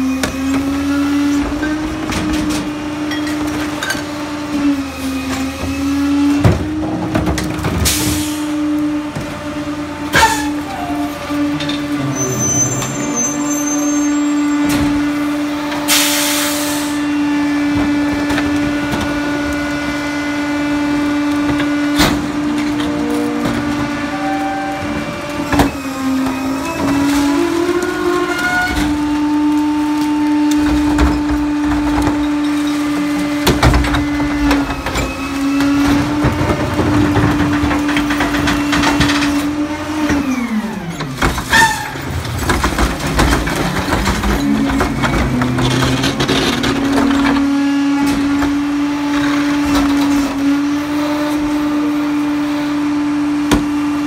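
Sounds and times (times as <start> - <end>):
garbage truck engine and hydraulics whine: 0.0 - 54.0
bins knocking: 41.0 - 47.5.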